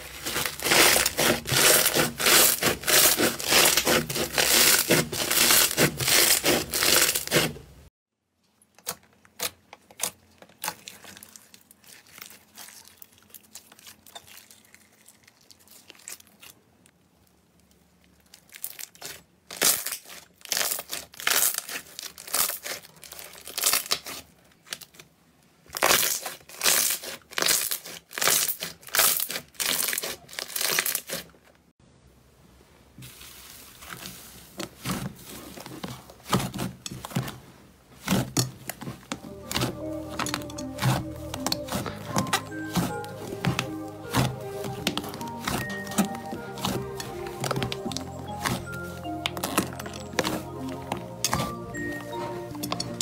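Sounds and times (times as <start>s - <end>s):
foam-bead slime crackling: 0.0s - 7.6s, 10.0s - 16.9s, 18.0s - 25.0s, 33.0s - 53.0s
slime squishing: 0.0s - 7.7s, 8.7s - 16.8s, 17.7s - 25.0s, 33.0s - 53.0s.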